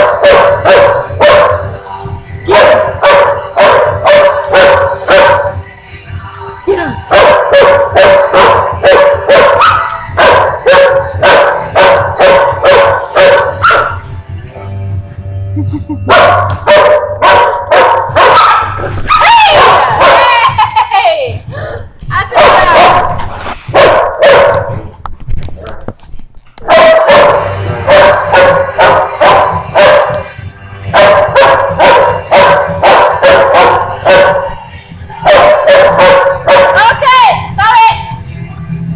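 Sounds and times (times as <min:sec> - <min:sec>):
dogs barking: 0:00.0 - 0:01.8, 0:02.5 - 0:05.6, 0:07.0 - 0:14.2, 0:16.1 - 0:20.8, 0:22.3 - 0:24.9, 0:26.6 - 0:37.4.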